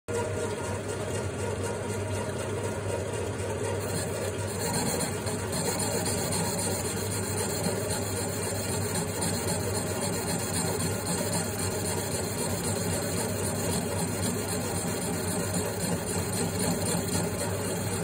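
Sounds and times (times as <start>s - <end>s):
metal lathe humming: 3.8s - 18.0s.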